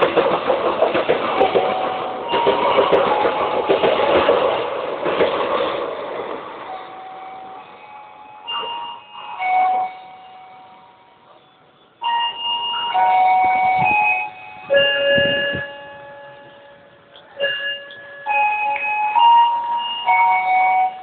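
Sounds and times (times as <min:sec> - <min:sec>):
train passing: 0:00.0 - 0:21.0
electronic chime melody: 0:06.7 - 0:21.0.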